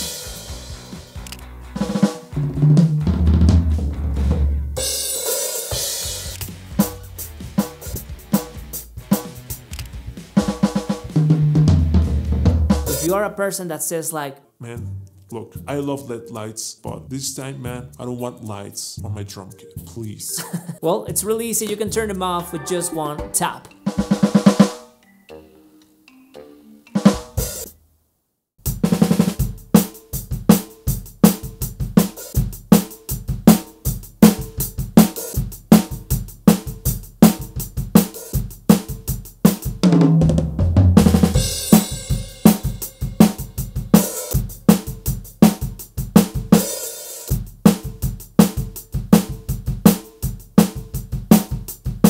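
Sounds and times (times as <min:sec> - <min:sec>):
electronic drum kit groove: 0:00.0 - 0:13.3, 0:14.8 - 0:24.9, 0:27.0 - 0:27.7, 0:28.7 - 0:52.0
tom fill falling in pitch: 0:14.6 - 0:16.6, 0:19.0 - 0:24.6.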